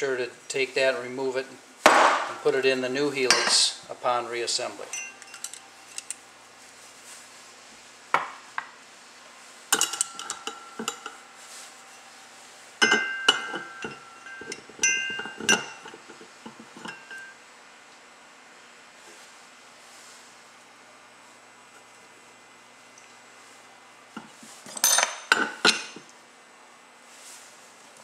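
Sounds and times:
bell-like metallic ring: 4.9s - 5.6s, 12.8s - 15.8s
metal parts clinking together: 4.9s - 6.2s, 9.7s - 11.2s, 12.8s - 17.3s, 24.7s - 26.0s.

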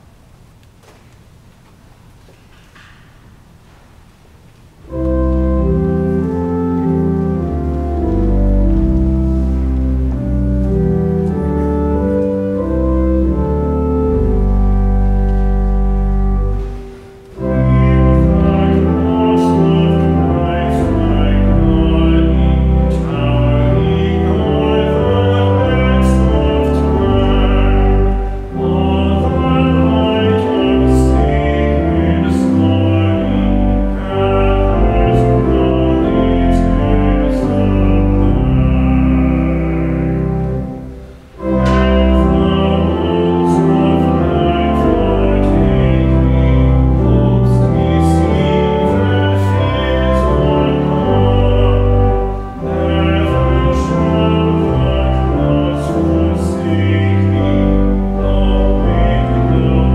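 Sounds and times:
pipe organ: 0.0s - 59.9s
people singing a hymn: 16.5s - 40.7s, 41.4s - 59.9s.

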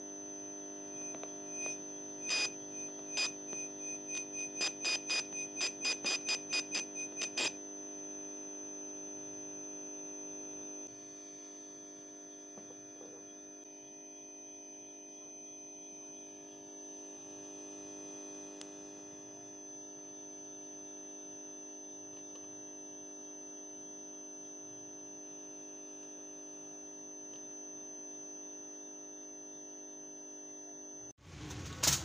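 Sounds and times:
electronic hum of held tones: 0.0s - 31.7s
rapid electronic beeping: 1.6s - 7.6s.

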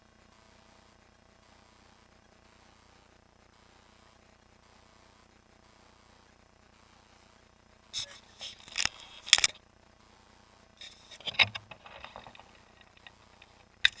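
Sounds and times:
clicks rattles and scrapes: 8.0s - 9.6s, 10.8s - 14.0s.

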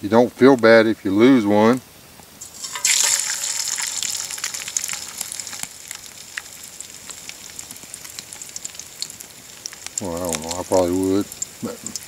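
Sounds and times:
meat sizzling in hot oil: 2.4s - 12.0s
oil popping: 2.4s - 12.0s.

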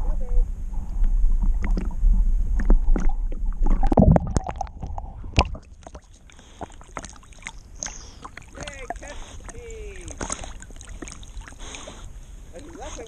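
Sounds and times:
low rumble: 0.0s - 5.9s
water sloshing and gurgling: 0.6s - 13.0s
water splashing: 1.3s - 13.0s.

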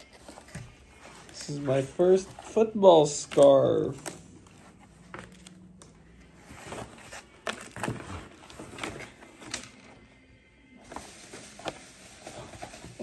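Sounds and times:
packaging rustling in cardboard box: 6.2s - 9.8s, 10.8s - 13.0s.

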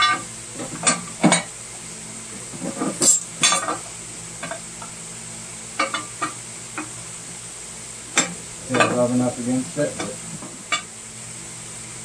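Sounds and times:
metal cover clinking and scraping: 2.6s - 3.8s, 5.8s - 6.4s.

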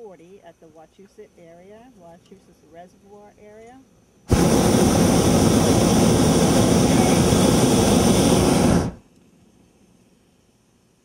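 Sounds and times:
propane burner roaring: 4.3s - 9.0s.

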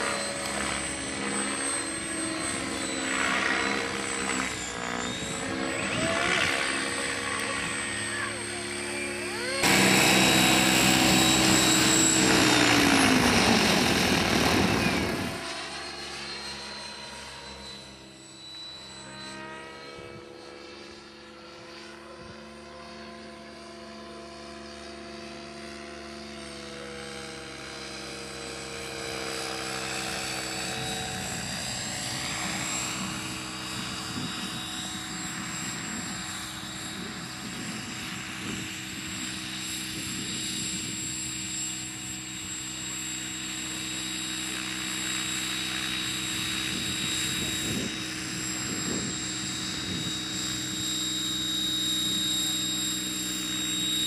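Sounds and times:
rotor blades whirring: 0.0s - 16.8s
rc helicopter motor whine: 0.0s - 54.0s.

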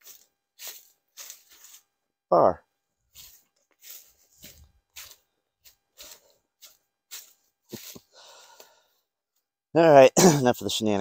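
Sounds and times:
footsteps on dry leaves: 0.0s - 1.9s, 3.1s - 8.1s.

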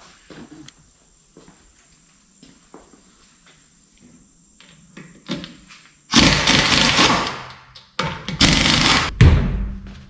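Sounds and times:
pneumatic impact wrench bursts: 6.1s - 7.5s, 8.3s - 9.1s.

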